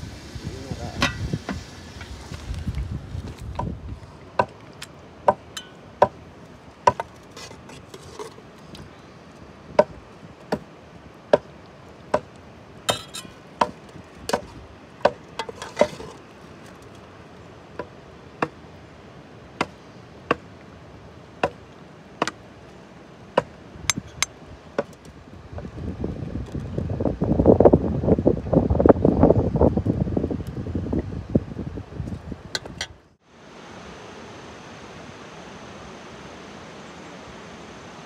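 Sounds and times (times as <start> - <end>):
metal spoon clinking on steel bowl: 12.9 - 13.3.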